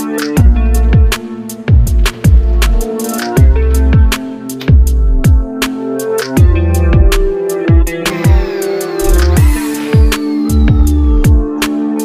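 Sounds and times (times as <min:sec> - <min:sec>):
deep kick drums: 0:01.7 - 0:02.8, 0:03.4 - 0:04.1
held synth notes: 0:07.9 - 0:11.6.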